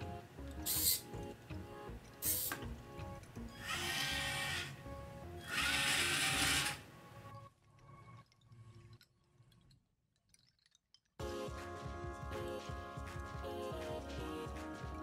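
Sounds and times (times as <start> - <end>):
background music: 0.0 - 8.9, 11.2 - 15.0
small motors whirring: 3.6 - 4.7, 5.4 - 6.8.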